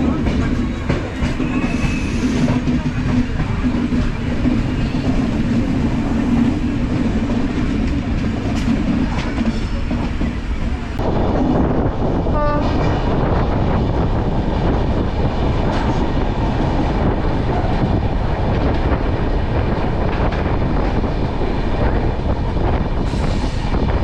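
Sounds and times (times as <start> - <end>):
train hum: 0.0 - 24.0
train running rumble: 0.0 - 24.0
train horn toot: 12.3 - 13.0.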